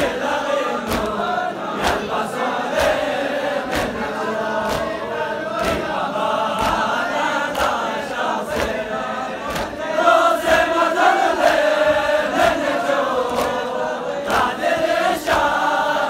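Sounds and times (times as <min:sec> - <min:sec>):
crowd of men chanting: 0:00.0 - 0:16.0
chest-beating slaps: 0:00.8 - 0:10.7, 0:12.4 - 0:14.6.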